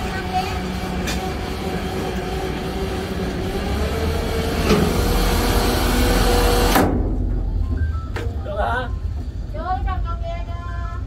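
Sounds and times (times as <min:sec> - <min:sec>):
heavy machinery rumbling: 0:00.0 - 0:08.0.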